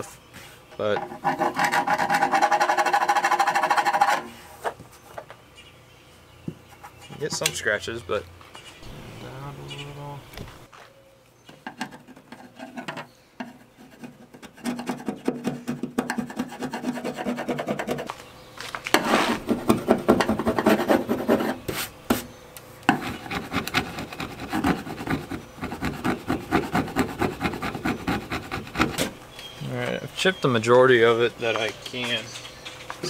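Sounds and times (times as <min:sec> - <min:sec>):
screwdriver scraping aluminum hull: 0:00.9 - 0:04.7, 0:22.9 - 0:29.1.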